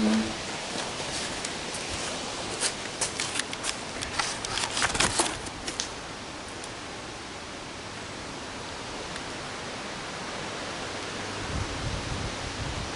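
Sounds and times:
steady hiss: 0:00.0 - 0:12.9
light clicks and scuffs: 0:00.7 - 0:05.9.

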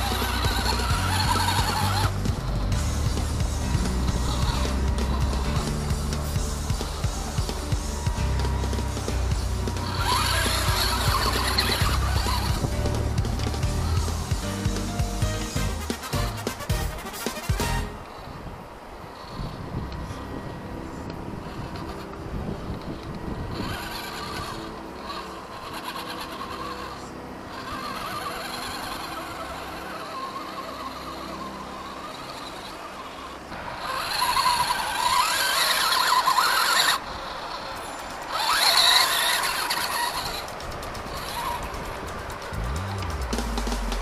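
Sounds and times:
electric motor whining: 0:00.0 - 0:44.0.

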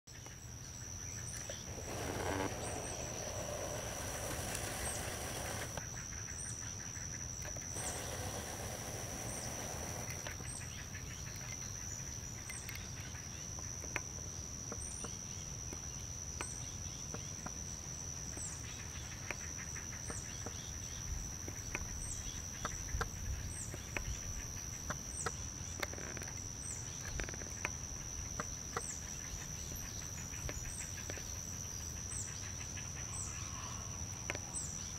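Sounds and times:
high-pitched insect drone: 0:07.5 - 0:13.0.

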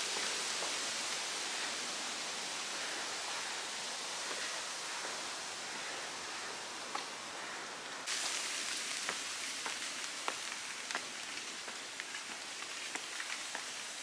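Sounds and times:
light rain hissing: 0:00.0 - 0:14.0.

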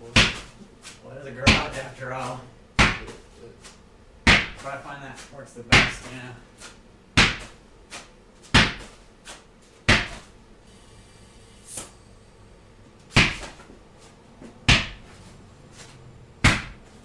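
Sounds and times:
tire thudding on concrete: 0:01.4 - 0:01.9, 0:13.1 - 0:13.8, 0:14.4 - 0:15.3, 0:16.4 - 0:17.0
short hiss of air: 0:10.7 - 0:12.0.

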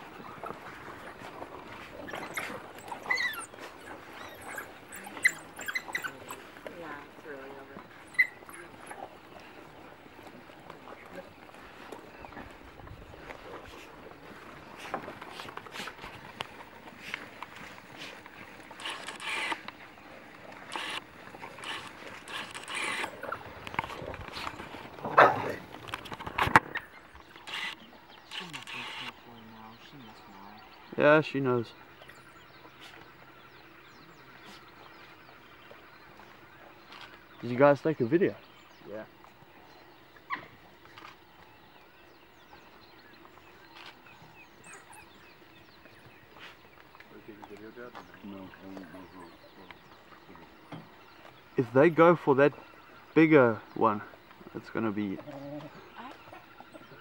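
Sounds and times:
scuffling: 0:00.0 - 0:27.2
wild dog yelp: 0:02.0 - 0:06.5, 0:08.0 - 0:09.1, 0:25.0 - 0:25.7, 0:40.2 - 0:40.6
short animal calls: 0:20.7 - 0:23.4.

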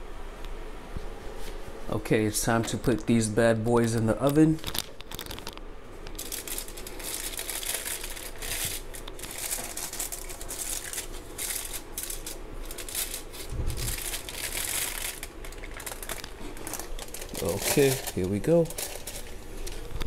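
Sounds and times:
crinkling and rustling: 0:03.8 - 0:20.0
low thump: 0:13.5 - 0:13.9.

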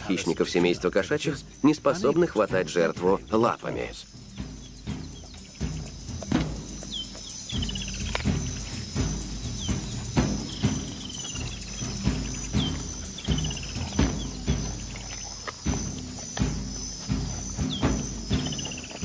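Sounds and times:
insect chirring: 0:00.0 - 0:19.0
animals snapping tearing and crunching: 0:14.1 - 0:16.5.

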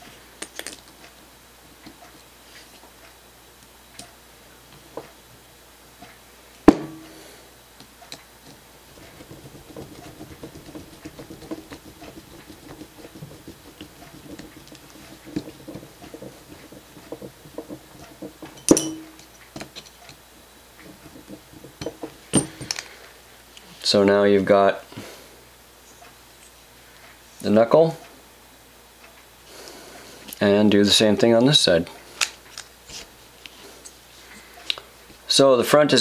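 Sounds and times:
screw threading into plastic: 0:08.5 - 0:18.7
metal clicking on parts: 0:20.8 - 0:22.9.

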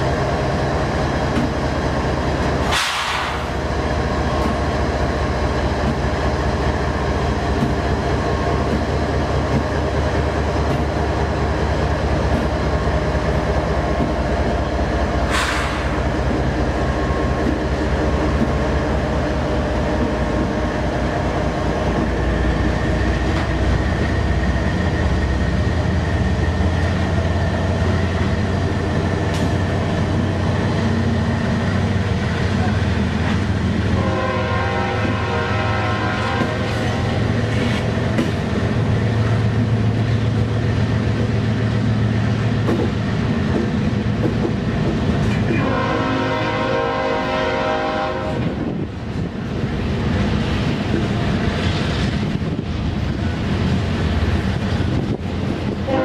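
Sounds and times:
diesel locomotive engines rumbling: 0:00.0 - 0:56.0
train wheels on rails: 0:00.0 - 0:56.0.

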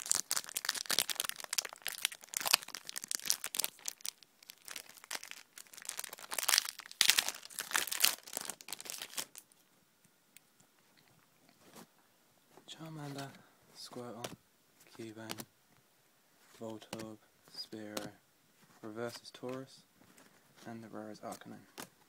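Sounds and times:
foil wrapper crinkling and tearing: 0:00.0 - 0:09.5.

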